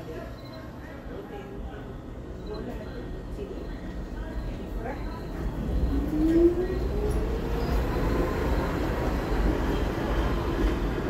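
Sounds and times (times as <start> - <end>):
train whine: 3.7 - 11.0
train wheels rumbling on rail: 4.0 - 11.0.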